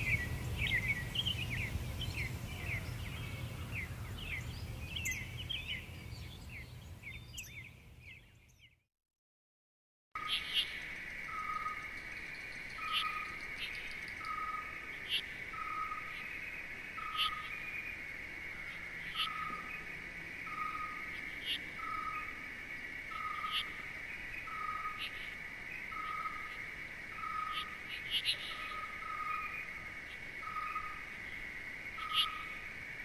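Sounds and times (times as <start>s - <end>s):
sharp bird chirps: 0.0s - 8.7s.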